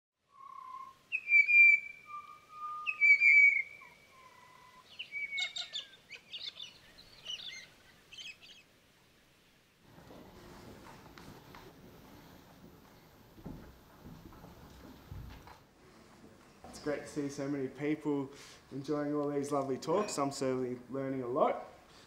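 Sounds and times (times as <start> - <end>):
birds chirping: 0.2 - 9.0
birds whistling: 0.3 - 8.6.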